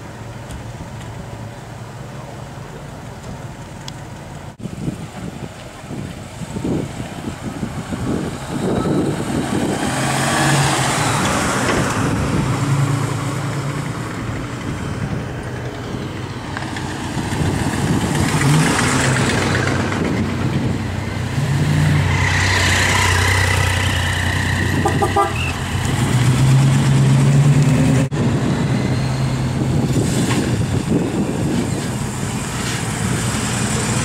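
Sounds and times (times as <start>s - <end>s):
cars driving past: 6.5s - 34.0s
motorcycle passing: 16.5s - 28.2s.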